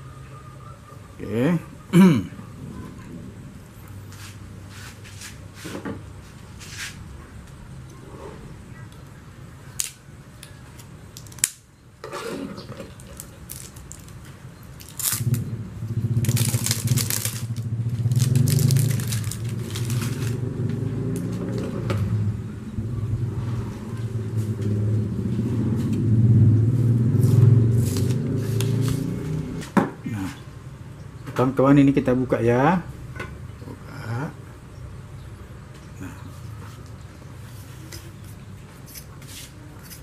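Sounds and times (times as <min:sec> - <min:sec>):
plastic wrapping crinkling: 0:13.0 - 0:15.4, 0:16.2 - 0:20.4
loud low engine-like hum: 0:14.9 - 0:29.7.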